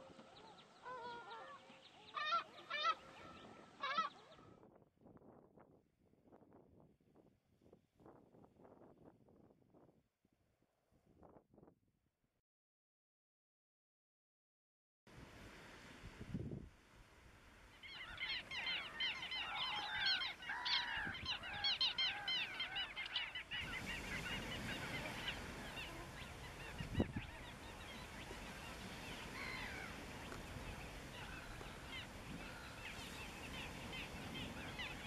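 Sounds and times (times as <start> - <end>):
waterbirds calling: 0.0 - 4.5, 17.6 - 35.0.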